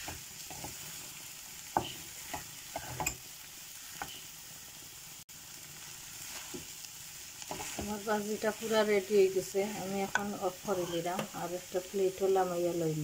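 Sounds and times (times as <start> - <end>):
food sizzling in a pan: 0.0 - 13.0
spatula scraping a metal pan: 1.8 - 3.3, 7.4 - 9.0.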